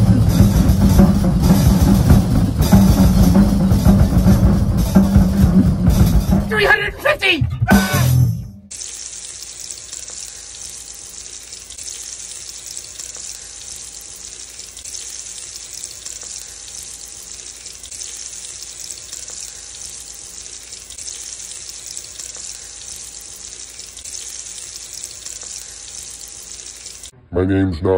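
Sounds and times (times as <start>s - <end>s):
frying sizzle: 8.7s - 27.1s.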